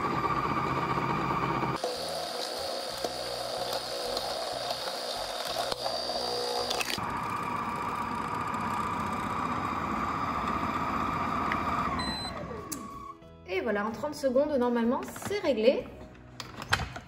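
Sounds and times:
food processor motor whine: 0:00.0 - 0:13.2.

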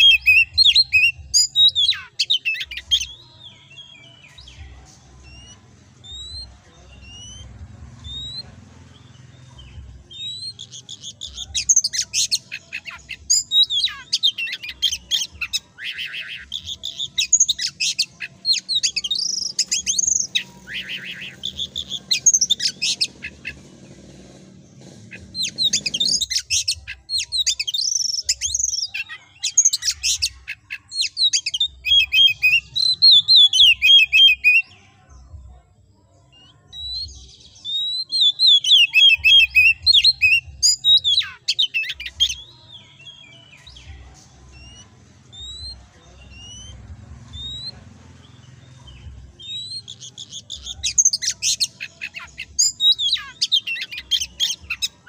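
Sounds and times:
bird singing: 0:00.0 - 0:55.0.

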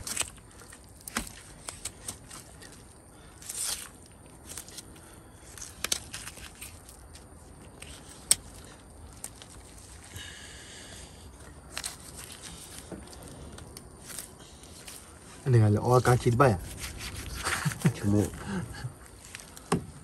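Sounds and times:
rustling scrape: 0:11.7 - 0:18.3.

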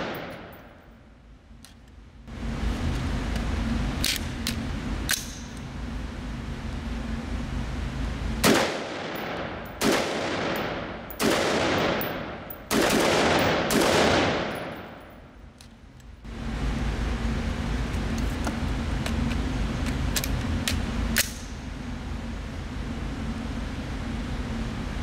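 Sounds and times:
rifle shots ringing indoors: 0:00.0 - 0:00.9, 0:08.4 - 0:15.4.

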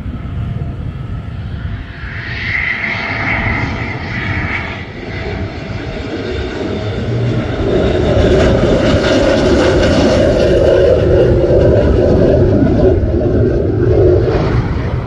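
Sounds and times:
jet aircraft approaching: 0:00.0 - 0:15.0.

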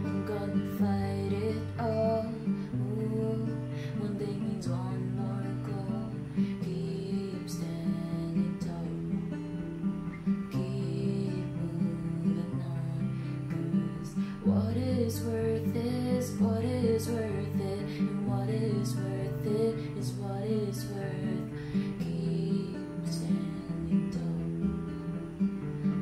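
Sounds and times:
acoustic guitar strumming: 0:00.0 - 0:26.0
girl singing: 0:00.0 - 0:26.0.

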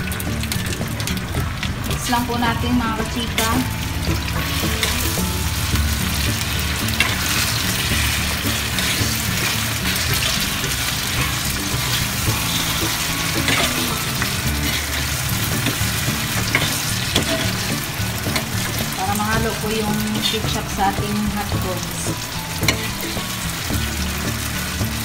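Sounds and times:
food sizzling in a frying pan: 0:00.0 - 0:25.0
metal spoon scraping a pan: 0:04.3 - 0:19.0, 0:22.6 - 0:24.7.

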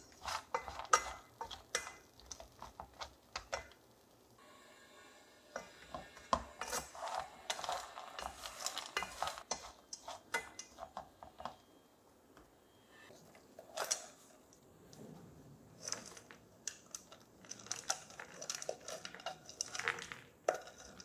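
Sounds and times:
pot clattering: 0:00.0 - 0:03.7
wooden spatula scraping a pot: 0:00.0 - 0:03.7, 0:05.1 - 0:11.6, 0:17.5 - 0:21.0.

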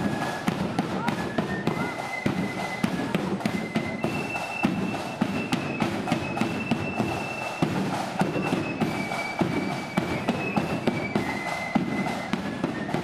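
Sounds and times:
rapid snare and bass drums: 0:00.0 - 0:13.0
shrill flute melody: 0:00.0 - 0:13.0.

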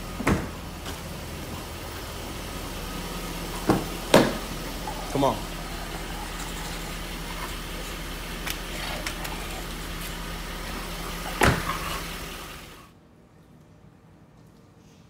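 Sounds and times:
car engine humming: 0:00.0 - 0:12.9
car door shutting: 0:11.1 - 0:12.3.

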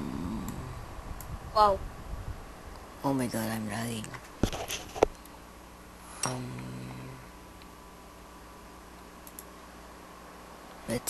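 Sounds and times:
man humming low: 0:00.0 - 0:00.9, 0:06.2 - 0:07.3
computer mouse clicks: 0:09.2 - 0:09.5.

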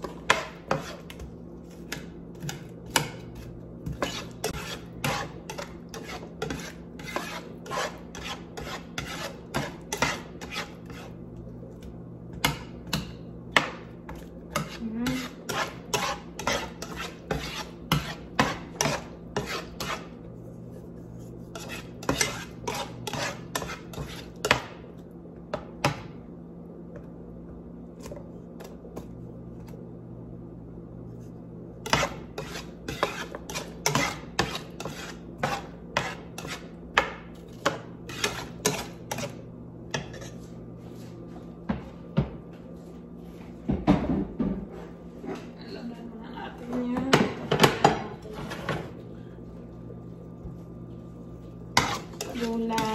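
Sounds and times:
spatula scraping a frying pan: 0:00.0 - 0:11.3, 0:14.1 - 0:24.6, 0:31.8 - 0:41.2, 0:51.7 - 0:52.9.

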